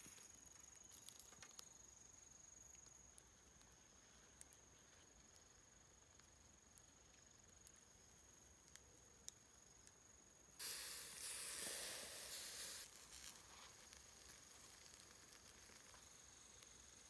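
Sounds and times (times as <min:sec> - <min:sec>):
insect trill: 0:00.0 - 0:08.5, 0:09.4 - 0:17.0
faint crackles: 0:00.0 - 0:17.0
food sizzling on a grill: 0:10.6 - 0:17.0.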